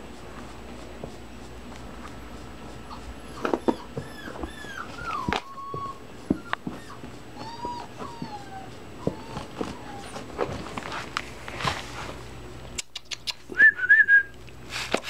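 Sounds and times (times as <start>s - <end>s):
puppy whimpering: 2.8s - 10.7s.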